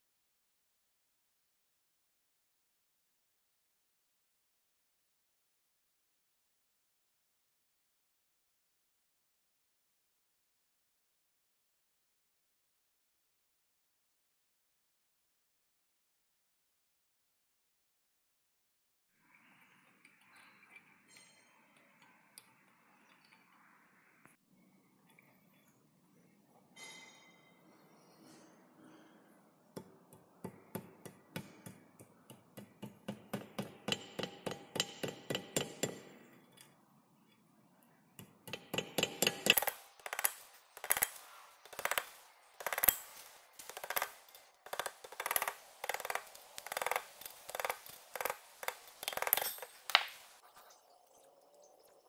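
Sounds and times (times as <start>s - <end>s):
small hammer tapping on wire: 29.8s - 36.8s, 38.2s - 50.3s.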